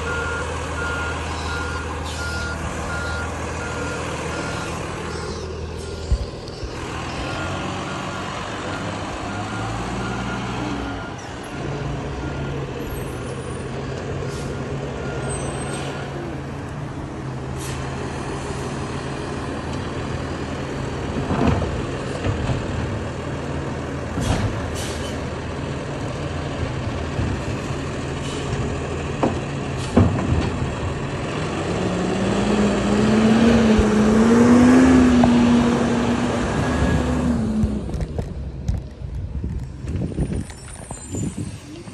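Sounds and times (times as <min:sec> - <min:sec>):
backup alarm beeping: 0:00.0 - 0:12.7
garbage truck engine: 0:00.0 - 0:41.9.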